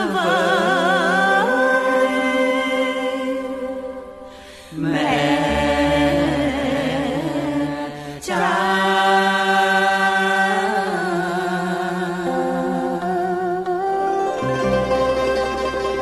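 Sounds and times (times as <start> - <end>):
wavering sung melody: 0.0 - 16.0
held instrumental notes: 12.4 - 16.0.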